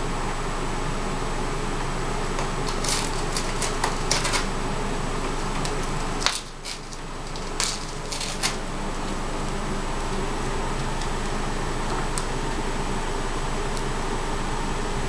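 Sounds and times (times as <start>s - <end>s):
parrot tearing paper: 2.4s - 4.6s, 5.4s - 8.8s.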